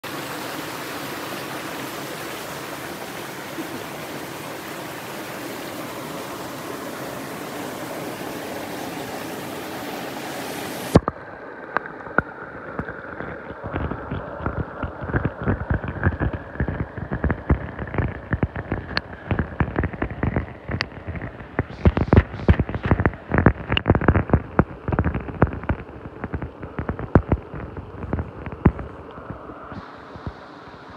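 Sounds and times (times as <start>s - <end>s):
stream water flowing: 0.0s - 30.9s
underwater gravel clicks and knocks: 10.9s - 30.4s.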